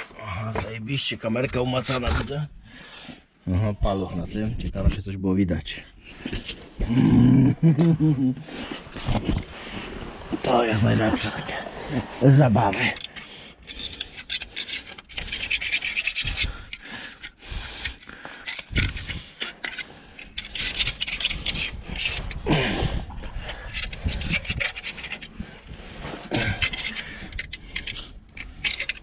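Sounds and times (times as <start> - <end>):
screwdriver scraping metal flange: 13.0 - 19.8, 26.7 - 29.0.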